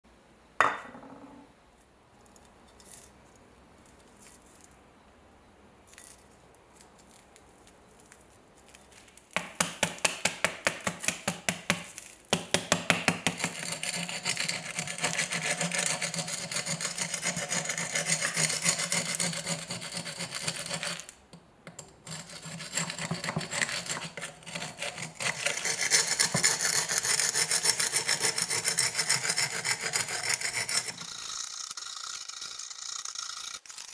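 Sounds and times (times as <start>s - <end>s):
metal scabbard knocking on wood: 0.6s - 1.3s
steel tool scraping rust: 22.0s - 31.4s.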